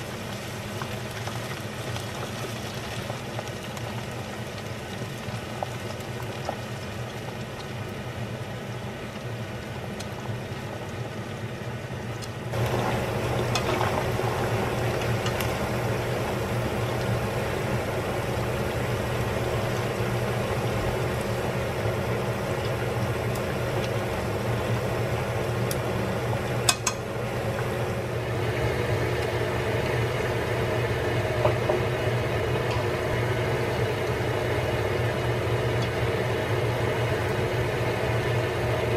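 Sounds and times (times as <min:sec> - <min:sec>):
hot oil sizzling and bubbling: 0:00.0 - 0:38.9
steady hum: 0:08.1 - 0:38.9.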